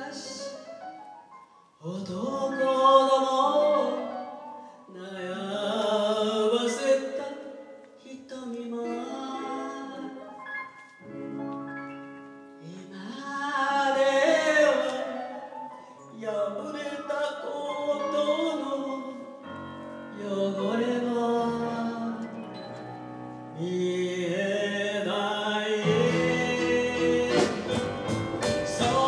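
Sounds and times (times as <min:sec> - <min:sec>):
woman singing into microphone: 0:04.9 - 0:10.3
band playing: 0:25.8 - 0:29.0.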